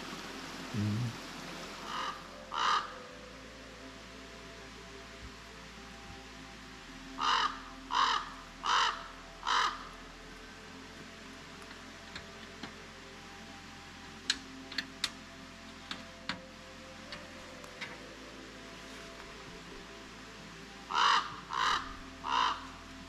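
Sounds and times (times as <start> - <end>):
crow cawing: 1.8 - 3.1, 7.2 - 10.0, 20.9 - 22.8.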